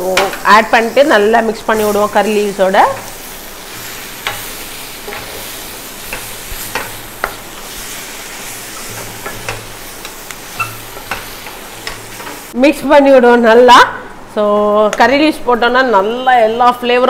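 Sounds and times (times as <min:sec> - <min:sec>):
oil sizzling: 0:00.0 - 0:12.6
spatula scraping a pan: 0:02.8 - 0:12.5.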